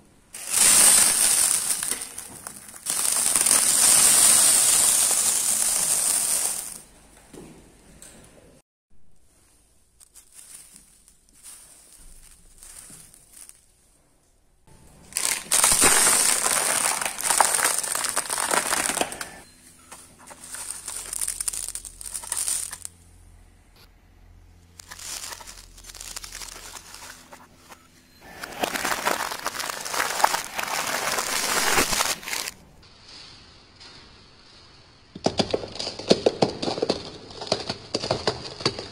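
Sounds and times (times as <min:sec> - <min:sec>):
tyre crushing crackling plastic packet: 0:00.4 - 0:06.8, 0:10.0 - 0:13.7, 0:15.0 - 0:23.0, 0:24.8 - 0:32.7, 0:35.2 - 0:38.9
low steady hum: 0:09.2 - 0:32.8.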